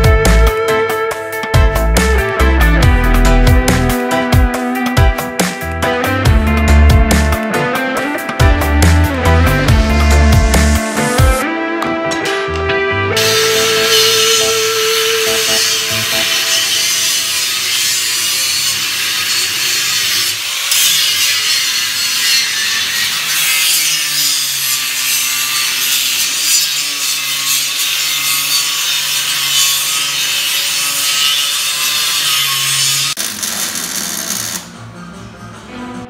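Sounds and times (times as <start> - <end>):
angle grinder cutting metal: 6.7 - 11.4, 13.2 - 34.7.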